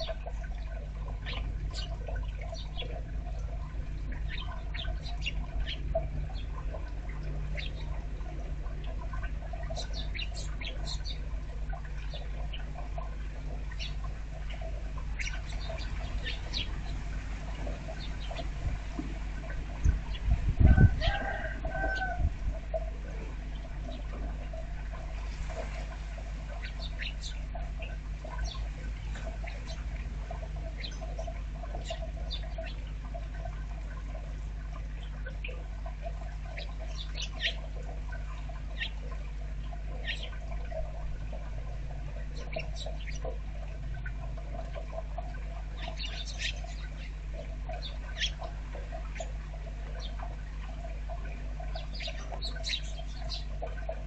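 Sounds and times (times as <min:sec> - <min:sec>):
small birds chirping: 0:00.0 - 0:20.4, 0:26.5 - 0:33.2, 0:36.4 - 0:39.2, 0:39.9 - 0:40.9, 0:42.2 - 0:43.4, 0:44.0 - 0:54.0
rain dripping: 0:00.0 - 0:54.0
steady low hum: 0:00.0 - 0:54.0.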